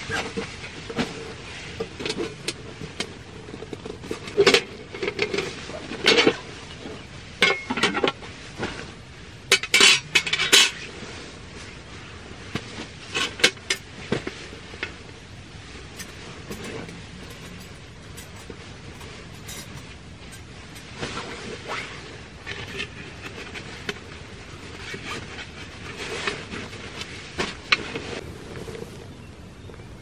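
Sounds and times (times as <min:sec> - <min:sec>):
metal table parts clinking: 0:16.0 - 0:20.9.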